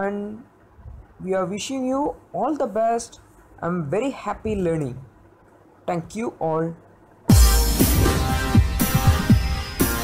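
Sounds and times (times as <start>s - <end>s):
deep drum hits dropping in pitch: 7.3s - 10.0s
electronic music: 7.3s - 10.0s.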